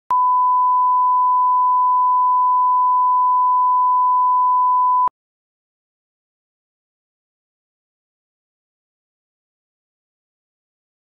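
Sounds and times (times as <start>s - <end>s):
steady test tone beep: 0.1s - 5.1s.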